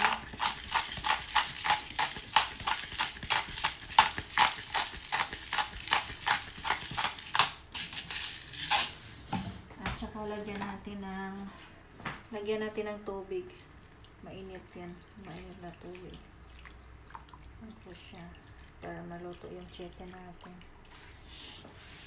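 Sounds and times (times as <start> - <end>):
salt shaker rattling: 0.0 - 9.0.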